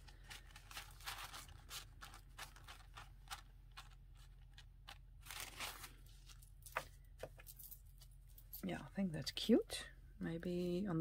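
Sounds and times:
fabric rustling and scratching: 0.0 - 8.4.

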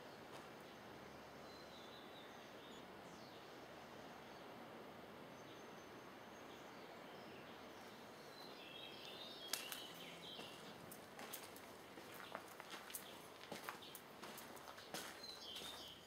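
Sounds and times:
faint outdoor ambience: 0.0 - 16.0
bird chirps: 15.0 - 16.0.

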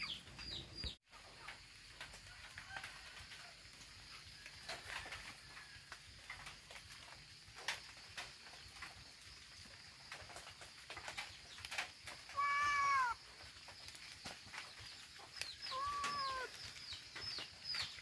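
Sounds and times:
cat meowing: 12.3 - 13.2, 15.7 - 16.5.

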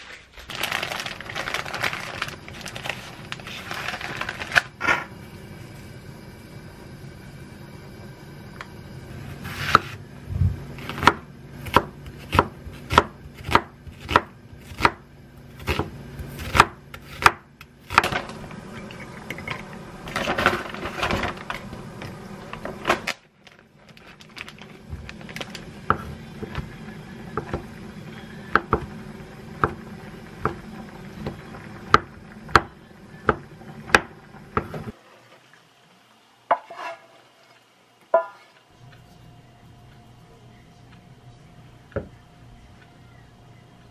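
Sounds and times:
knife cutting onion on board: 9.4 - 10.0, 10.8 - 18.2.

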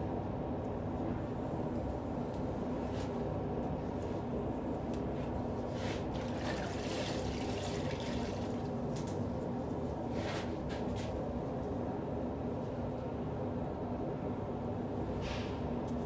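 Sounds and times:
water splashing into bucket: 6.1 - 8.9.

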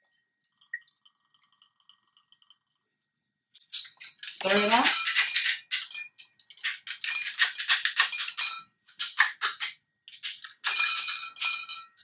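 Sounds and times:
spoon clinking against glass: 3.7 - 7.4, 10.6 - 12.0.

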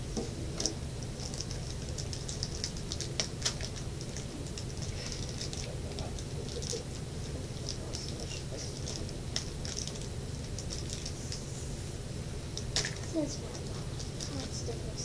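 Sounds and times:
plastic wrapper crinkling: 1.2 - 6.8, 7.6 - 11.4.

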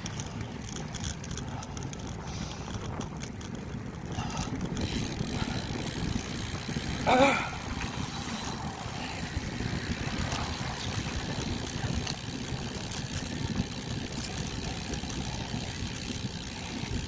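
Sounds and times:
faint clicks: 0.0 - 5.7
wind buffeting microphone: 0.0 - 17.0.

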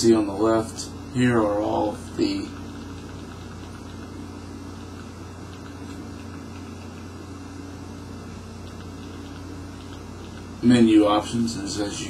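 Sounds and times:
room noise hum and hiss: 0.0 - 12.0
faint ticks: 8.6 - 10.6.

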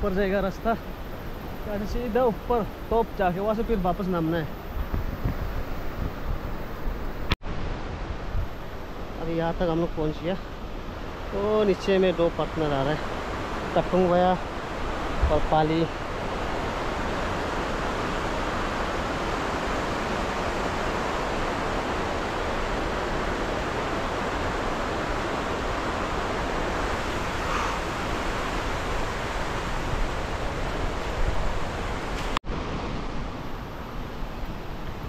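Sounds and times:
river rapids rushing: 8.8 - 35.0.

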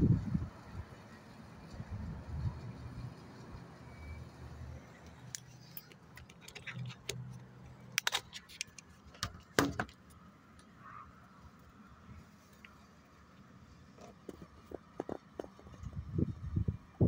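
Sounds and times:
phone handling clicks and knocks: 8.0 - 10.0.

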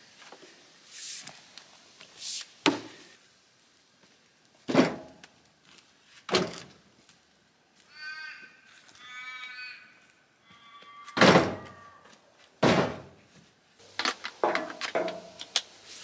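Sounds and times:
firewood thudding into truck tray: 4.7 - 5.2, 11.2 - 11.6, 12.6 - 13.1.

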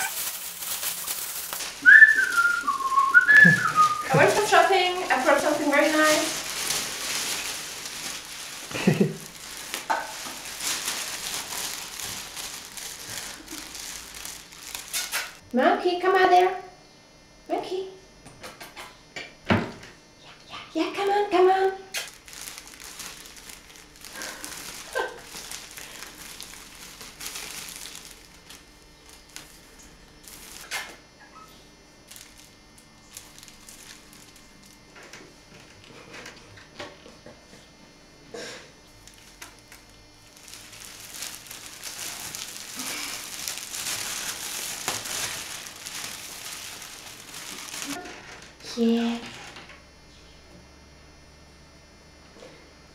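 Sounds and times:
plastic bag crinkling: 0.0 - 15.4, 21.9 - 31.4, 32.0 - 34.9, 39.0 - 48.2.

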